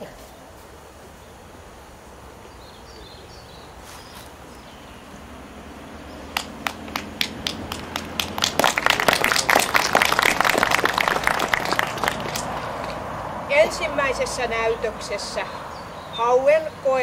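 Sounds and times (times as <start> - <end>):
audience applause: 6.3 - 13.1.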